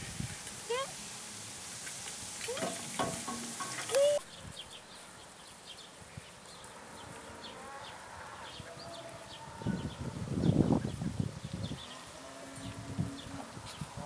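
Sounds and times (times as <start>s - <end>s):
child calling: 3.9s - 4.2s.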